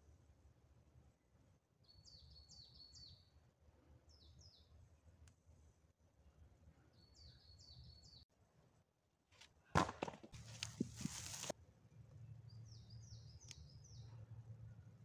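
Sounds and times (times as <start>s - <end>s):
small bird singing: 1.8s - 3.4s, 4.1s - 4.8s, 6.8s - 8.3s, 12.4s - 14.3s
low rumble of wind: 10.4s - 15.0s.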